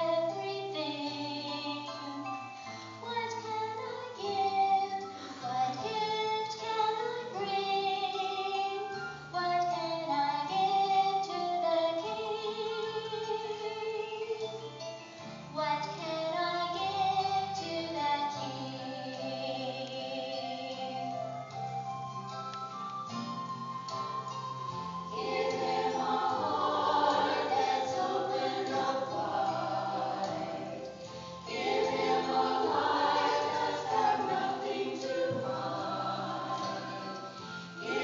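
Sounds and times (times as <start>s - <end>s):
women's vocal ensemble singing: 25.1s - 38.0s.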